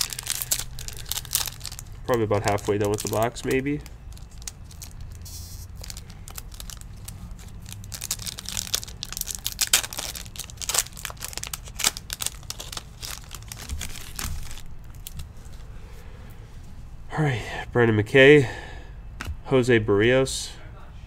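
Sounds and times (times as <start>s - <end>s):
foil wrapper tearing and crinkling: 0.0s - 15.3s.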